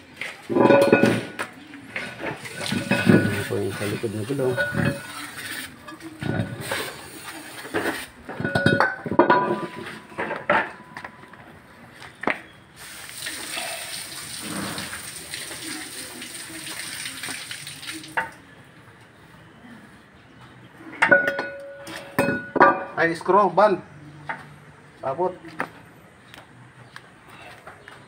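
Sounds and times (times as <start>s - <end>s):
liquid splashing: 2.4s - 5.8s.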